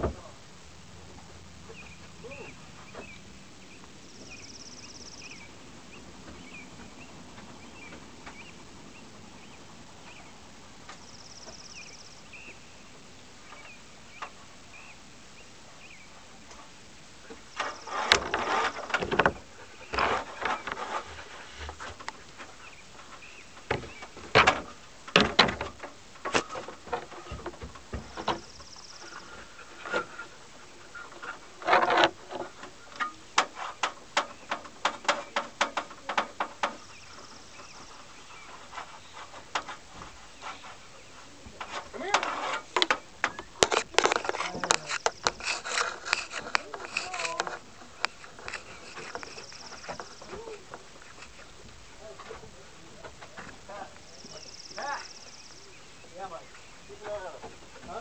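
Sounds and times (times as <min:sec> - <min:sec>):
faint chirping: 0:01.6 - 0:16.6, 0:28.0 - 0:31.4, 0:32.7 - 0:42.1, 0:42.8 - 0:53.0, 0:53.6 - 0:58.0.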